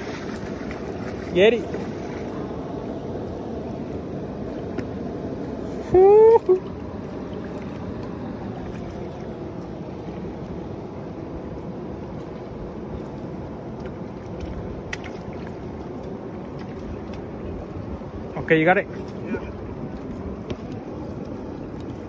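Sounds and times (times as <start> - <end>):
water lapping against rocks: 0.0 - 2.7, 12.2 - 18.2
wind rumble on microphone: 0.0 - 22.0.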